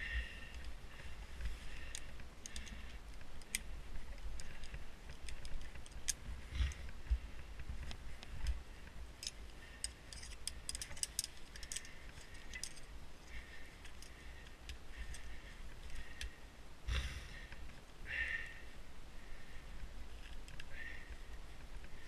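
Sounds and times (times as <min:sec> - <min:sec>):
carabiners clicking and jingling: 0:01.7 - 0:06.2, 0:09.2 - 0:16.3.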